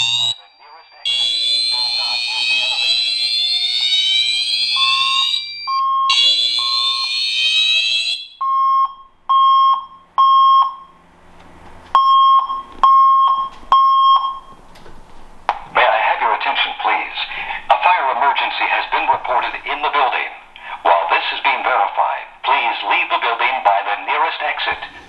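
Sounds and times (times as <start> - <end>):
short alarm beeps: 0.0 - 11.0, 12.0 - 14.6
fire alarm buzzing horn: 0.0 - 11.1, 15.9 - 25.0.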